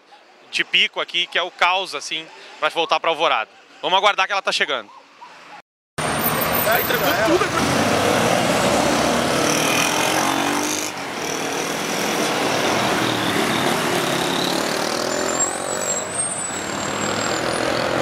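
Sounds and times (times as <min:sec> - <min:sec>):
road traffic passing: 0:04.9 - 0:18.0
brake squeal: 0:06.0 - 0:07.5, 0:09.5 - 0:18.0.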